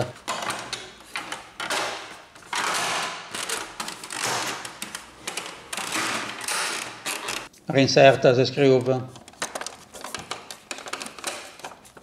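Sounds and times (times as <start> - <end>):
plastic scraping on plastic: 8.7 - 12.0.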